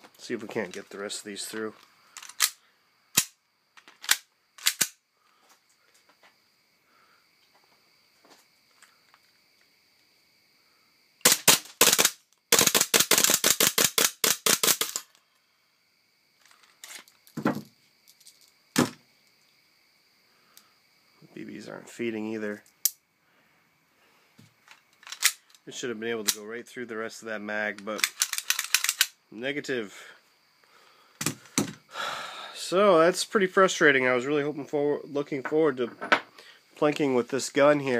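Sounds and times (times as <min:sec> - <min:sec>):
pistol mechanical clicks: 0:02.2 - 0:02.6, 0:03.2 - 0:05.0, 0:11.2 - 0:15.1, 0:25.0 - 0:25.6, 0:28.0 - 0:29.2
airsoft pistol gas shots: 0:11.2 - 0:15.0.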